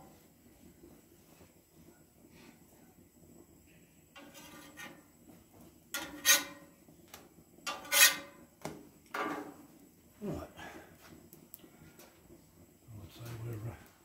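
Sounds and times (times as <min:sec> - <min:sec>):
metal spatula scraping griddle: 0:04.2 - 0:05.1, 0:05.9 - 0:06.8, 0:07.6 - 0:08.5, 0:09.2 - 0:09.6.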